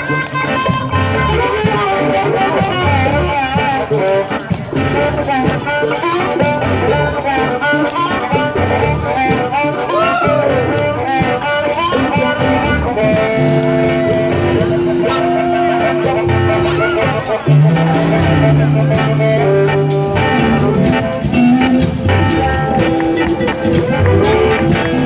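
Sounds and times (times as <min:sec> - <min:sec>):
electric blues band playing: 0:00.0 - 0:25.0
harmonica with bent notes: 0:09.8 - 0:11.1.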